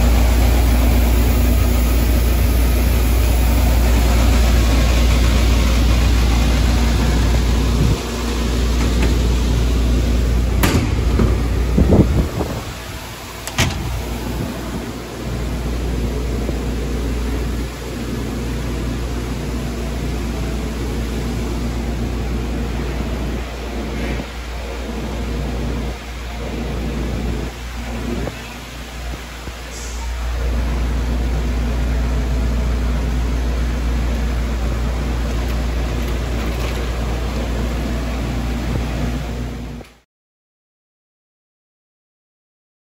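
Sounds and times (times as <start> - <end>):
machine shop hum: 0.0 - 40.0.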